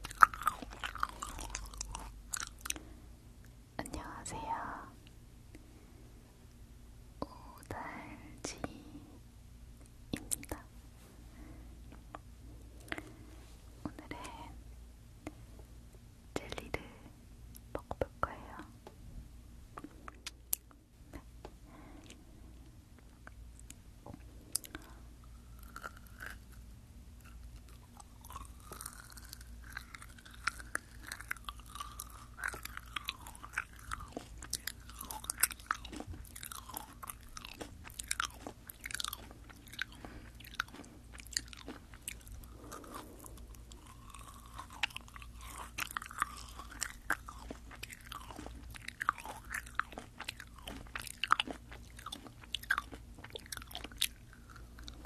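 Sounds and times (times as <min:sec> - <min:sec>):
chewing gummy candies: 0:00.0 - 0:03.0, 0:19.8 - 0:55.0.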